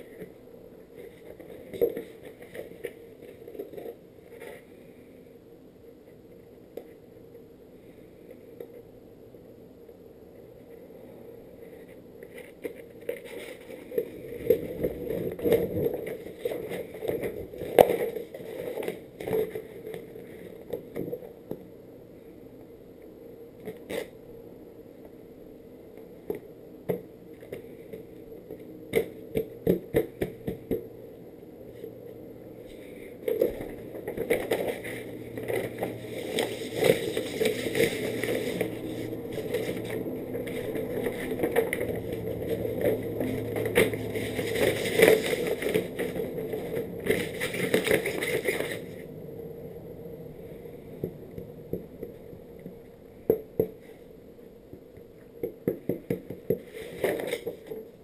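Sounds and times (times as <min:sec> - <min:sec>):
paper rustling and crackling: 0:11.8 - 0:20.6, 0:32.7 - 0:49.0, 0:56.5 - 0:57.8.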